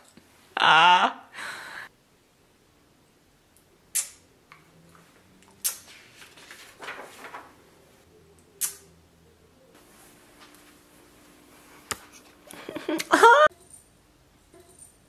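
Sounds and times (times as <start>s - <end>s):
newspaper crackling: 5.9s - 8.0s
newspaper rustling: 5.9s - 8.0s.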